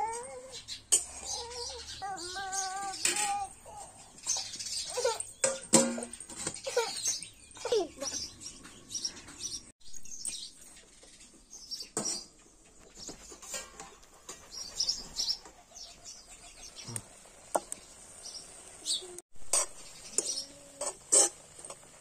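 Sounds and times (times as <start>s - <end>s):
small birds chirping: 0.0s - 21.0s
metal spatula scraping a wok: 19.4s - 22.0s.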